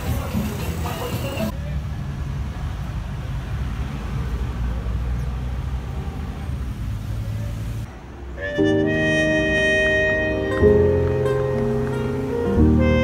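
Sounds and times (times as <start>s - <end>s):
music: 0.0s - 1.5s, 8.4s - 13.0s
road traffic rumble: 0.0s - 13.0s.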